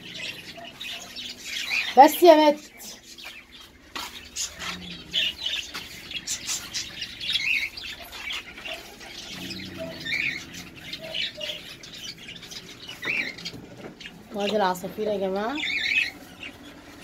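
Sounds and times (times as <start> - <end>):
small dogs: 0.0 - 2.0, 4.0 - 12.1
small birds chirping and squawking: 0.0 - 17.0.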